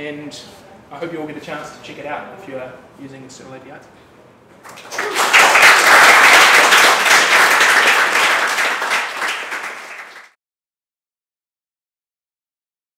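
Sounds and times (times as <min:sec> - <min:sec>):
audience applauding: 0:04.6 - 0:10.4.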